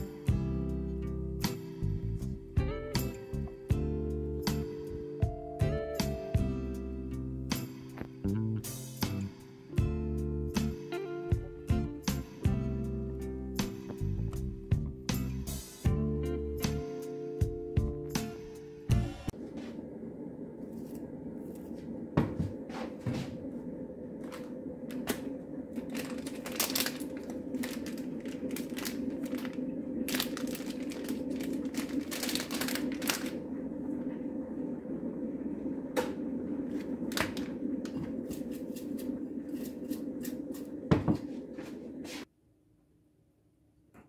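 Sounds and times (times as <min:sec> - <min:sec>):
steady low hum: 0:00.0 - 0:44.0
pepper shaken from paper packet: 0:25.8 - 0:33.4.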